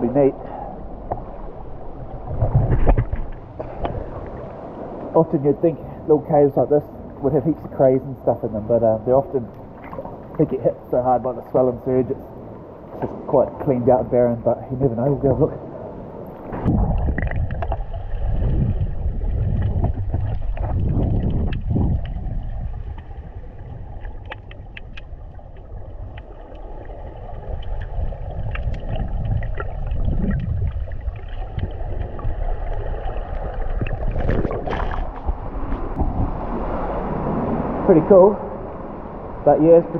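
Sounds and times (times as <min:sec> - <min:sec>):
underwater churning rumble and bubbles: 0:00.0 - 0:39.8
sharp clicks and crackles: 0:19.6 - 0:22.2, 0:24.0 - 0:26.7, 0:27.5 - 0:32.3.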